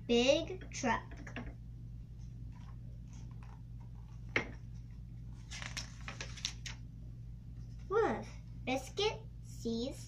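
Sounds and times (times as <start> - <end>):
steady low hum: 0.0 - 10.0
paper pages being turned: 2.5 - 6.8.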